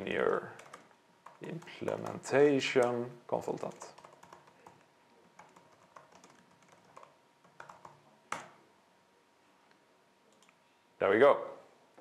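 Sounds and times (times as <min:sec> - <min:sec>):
typing on computer keyboard: 0:00.4 - 0:02.9, 0:03.6 - 0:08.6.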